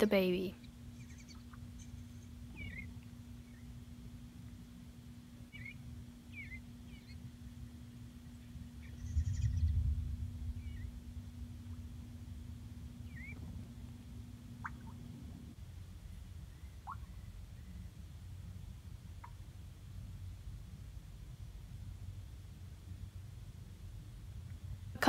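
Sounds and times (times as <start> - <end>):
steady low hum: 0.0 - 25.0
bluebirds chirping: 0.6 - 4.6, 5.4 - 12.2, 12.8 - 15.2, 16.0 - 18.0
low rumble: 5.2 - 18.9.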